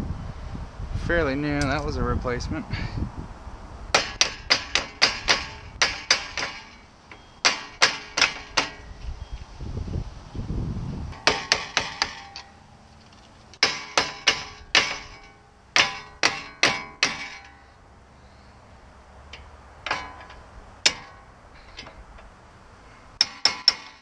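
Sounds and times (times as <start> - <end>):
metal-on-metal strikes ringing: 4.0 - 8.9, 11.2 - 12.6, 13.6 - 17.8, 19.4 - 21.9, 23.2 - 24.0.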